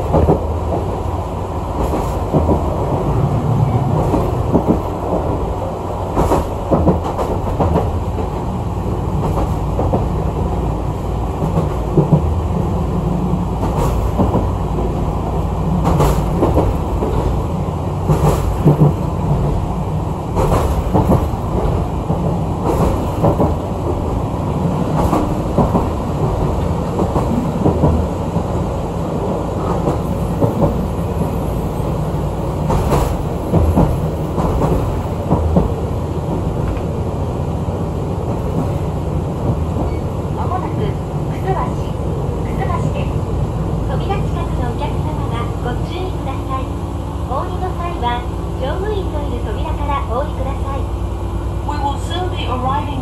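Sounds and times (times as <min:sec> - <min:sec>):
train running rumble: 0:00.0 - 0:53.0.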